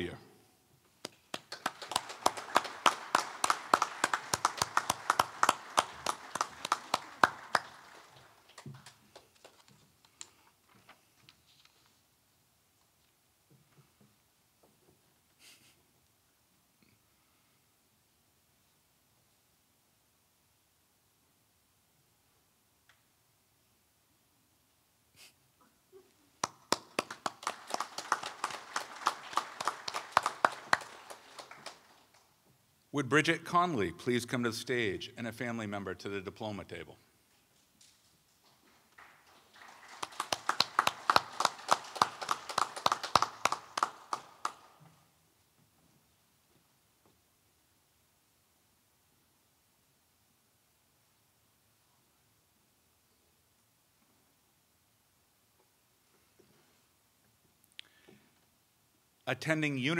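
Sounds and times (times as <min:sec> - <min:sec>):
small audience clapping: 0:01.0 - 0:10.3, 0:26.4 - 0:32.3, 0:37.8 - 0:45.0
small group applauding: 0:01.0 - 0:10.3, 0:26.4 - 0:32.3, 0:37.8 - 0:45.0.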